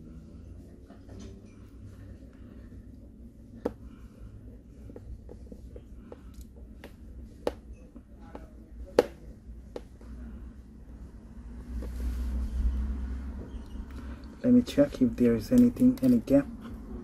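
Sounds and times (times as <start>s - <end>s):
fingertips clicking phone parts: 15.4s - 16.4s.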